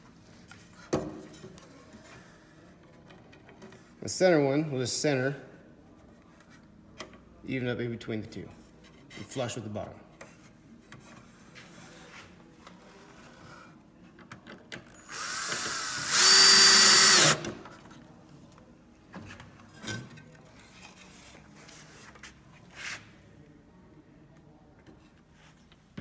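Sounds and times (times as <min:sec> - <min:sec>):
cordless drill driving screw: 0:15.0 - 0:17.5.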